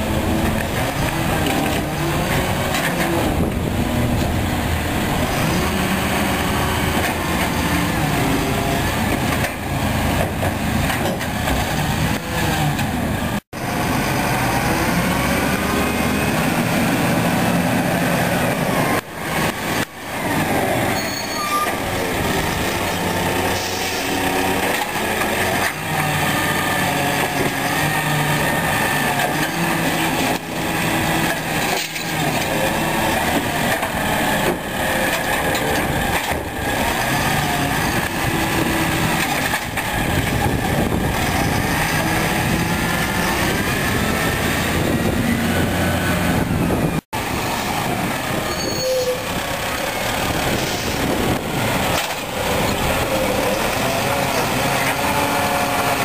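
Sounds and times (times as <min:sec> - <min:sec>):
diesel truck engine running: 0:49.2 - 0:56.0.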